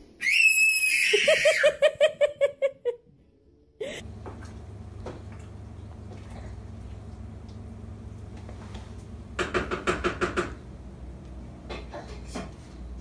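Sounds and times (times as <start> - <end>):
child squealing: 0.2 - 1.8
child giggling: 0.8 - 3.0.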